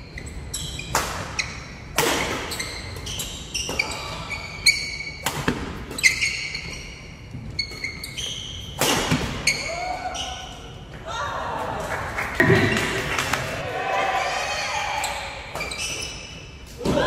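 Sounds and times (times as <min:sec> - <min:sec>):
shoes squeaking on wooden floor: 0:05.8 - 0:08.8, 0:15.6 - 0:16.6.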